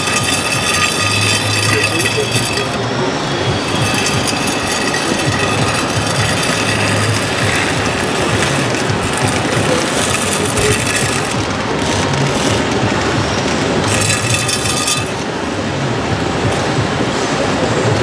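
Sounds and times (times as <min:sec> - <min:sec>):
dirt scraping over floor: 0:00.0 - 0:02.8, 0:03.6 - 0:13.0
toy motor whirring: 0:00.0 - 0:02.8, 0:03.5 - 0:15.3
steady background noise: 0:00.0 - 0:18.0.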